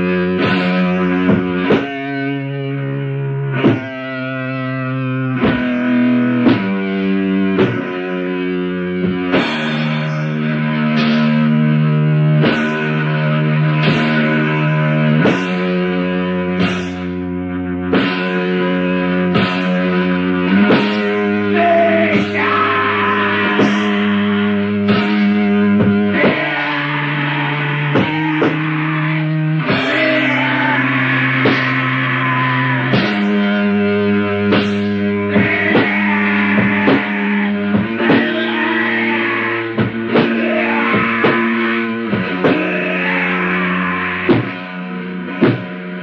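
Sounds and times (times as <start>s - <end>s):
held electric guitar chords: 0.0s - 46.0s
drum hits: 0.4s - 2.1s, 3.6s - 4.1s, 5.4s - 5.8s, 6.4s - 8.0s, 9.0s - 10.4s, 11.0s - 11.6s, 12.4s - 13.0s, 16.6s - 17.3s, 19.4s - 29.0s, 29.6s - 43.5s, 44.2s - 46.0s.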